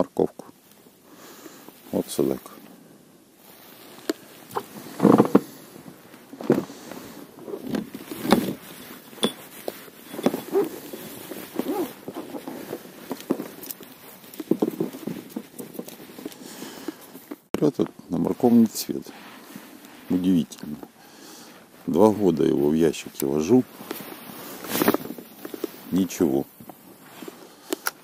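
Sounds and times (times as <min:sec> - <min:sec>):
knocks and scrapes in a boat: 0:04.5 - 0:16.4.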